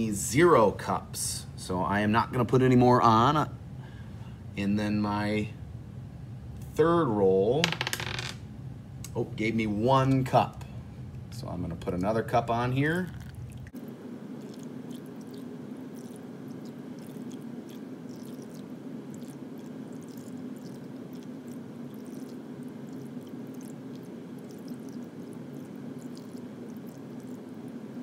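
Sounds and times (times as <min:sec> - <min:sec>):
steady background hum: 0:00.0 - 0:28.0
water dripping: 0:14.4 - 0:27.4.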